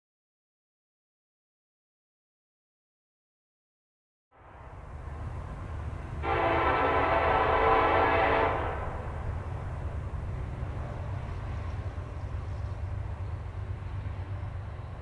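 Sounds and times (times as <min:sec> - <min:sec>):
distant locomotive air horn: 0:06.2 - 0:09.1.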